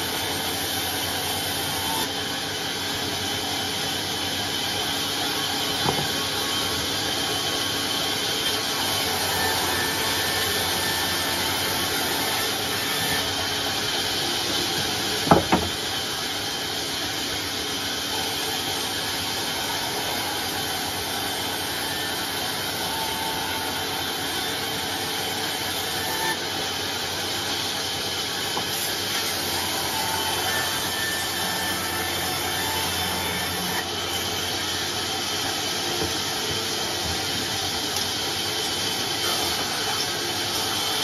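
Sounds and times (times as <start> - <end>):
band saw cutting wood: 0.0 - 41.0
sharp knocks: 15.2 - 15.7.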